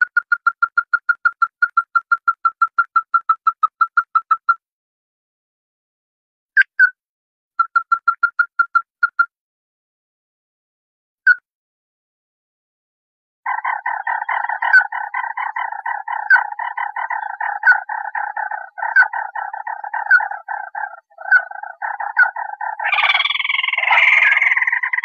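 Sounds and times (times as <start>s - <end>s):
crake calling: 13.5s - 25.0s
harsh bird call: 13.5s - 25.0s.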